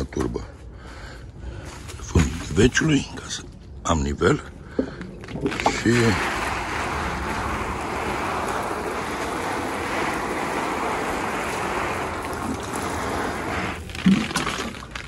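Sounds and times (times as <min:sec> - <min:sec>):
water spraying onto soil: 0:05.4 - 0:15.0.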